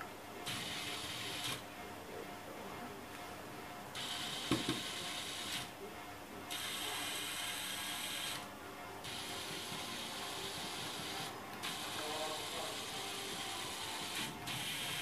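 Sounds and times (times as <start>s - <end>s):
small motors whirring: 4.0s - 5.7s, 6.5s - 15.0s.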